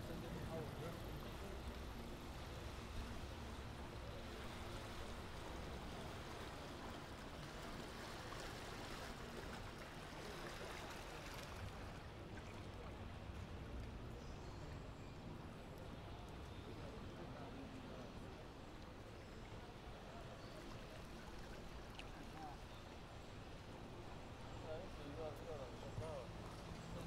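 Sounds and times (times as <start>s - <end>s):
boat wash of water: 0.0s - 14.8s
boat engine hum: 0.0s - 27.0s
city background noise: 0.0s - 27.0s.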